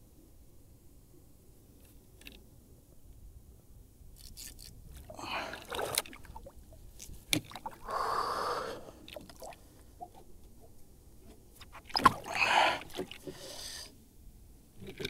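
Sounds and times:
heavy breathing: 0:05.1 - 0:05.7, 0:07.8 - 0:09.1, 0:12.2 - 0:14.0.

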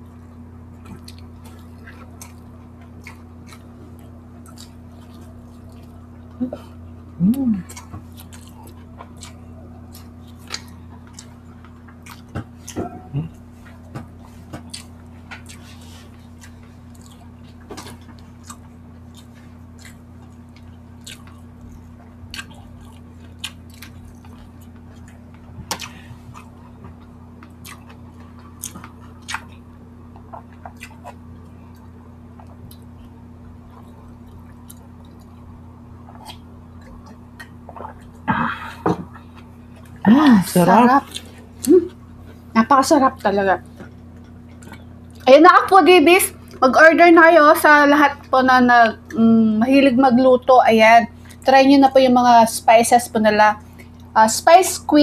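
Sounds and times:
steady low hum: 0:00.0 - 0:55.0
wet chewing and lip smacks: 0:00.7 - 0:06.7, 0:07.6 - 0:40.0, 0:41.0 - 0:45.3.

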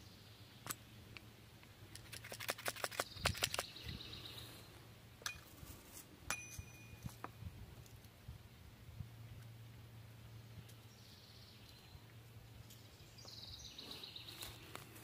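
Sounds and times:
gun metallic clicks: 0:01.9 - 0:03.7.

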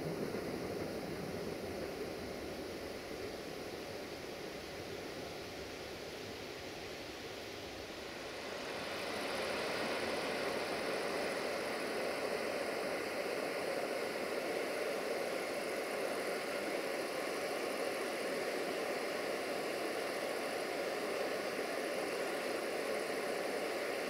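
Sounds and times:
river rushing over rapids: 0:08.1 - 0:24.0.

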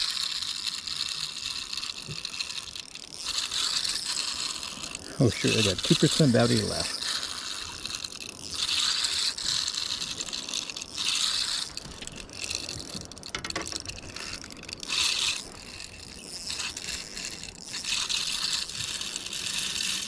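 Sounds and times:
fishing reel ratcheting whirr: 0:00.0 - 0:20.0
rapid ticks: 0:00.0 - 0:20.0.

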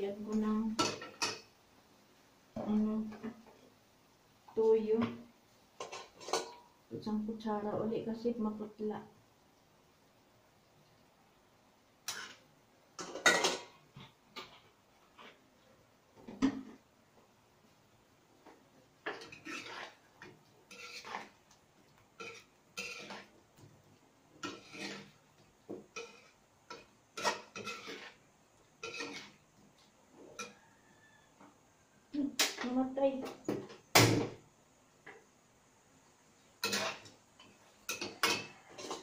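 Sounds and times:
metal spatula scraping frying pan: 0:05.8 - 0:06.7, 0:12.1 - 0:12.4, 0:19.0 - 0:21.4, 0:22.2 - 0:23.3, 0:24.4 - 0:25.3, 0:25.9 - 0:29.4, 0:36.6 - 0:39.0.

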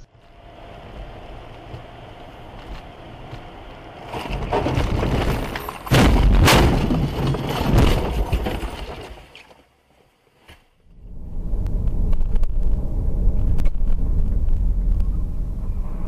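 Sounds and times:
crunching breaking blows: 0:04.0 - 0:09.7
car crash impact: 0:04.1 - 0:09.4
rush of noise: 0:10.9 - 0:16.0.

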